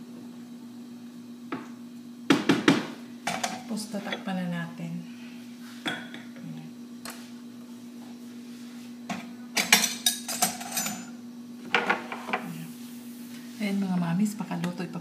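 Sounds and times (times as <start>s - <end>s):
steady low hum: 0.0s - 15.0s
cookware clattering: 9.1s - 11.1s.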